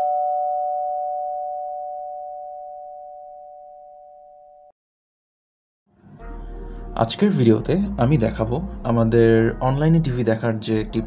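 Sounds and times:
two-note ding-dong chime: 0.0s - 4.7s.

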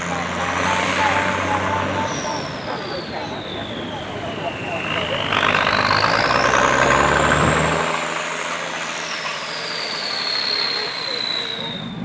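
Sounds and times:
fire truck engine passing: 0.0s - 12.0s
siren wailing: 1.1s - 6.6s, 8.6s - 12.0s.

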